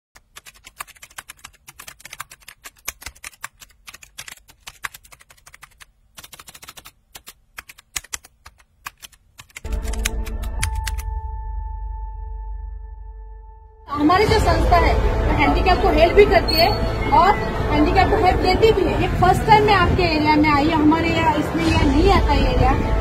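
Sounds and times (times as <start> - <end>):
keyboard key clicks: 0.4 - 11.1.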